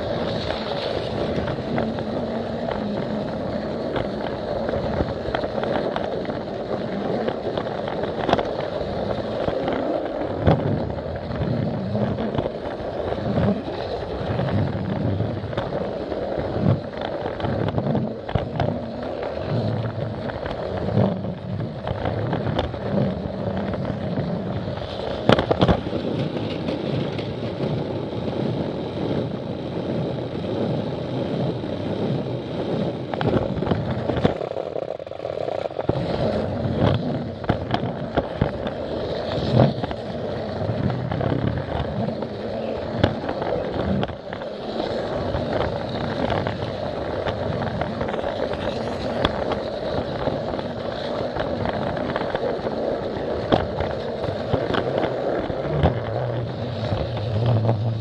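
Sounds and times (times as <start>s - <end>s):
toy train rattling rumble: 0.0s - 58.0s.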